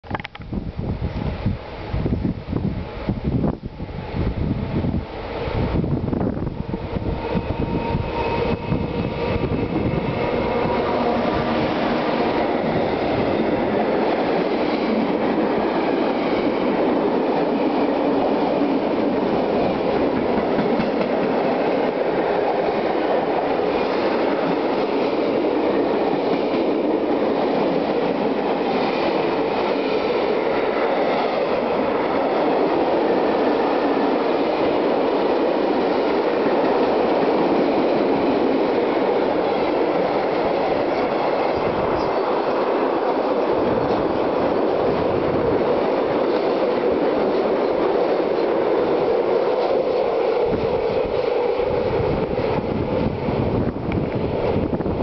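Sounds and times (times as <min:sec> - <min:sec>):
freight train wheels rumbling: 0:00.0 - 0:55.0.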